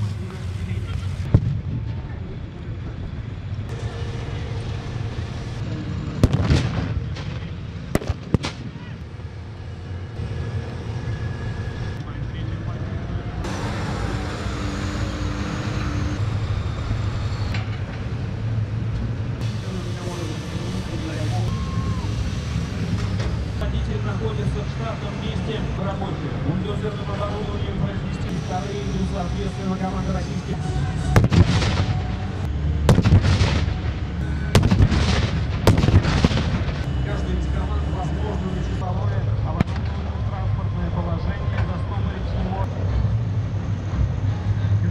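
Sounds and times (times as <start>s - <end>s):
faint held whine: 0.0s - 32.9s, 33.6s - 35.6s, 36.4s - 44.9s
diesel truck engines rumbling: 0.0s - 44.9s
explosive blasts: 1.1s - 2.2s, 3.7s - 8.8s, 31.1s - 37.2s, 39.6s - 40.1s.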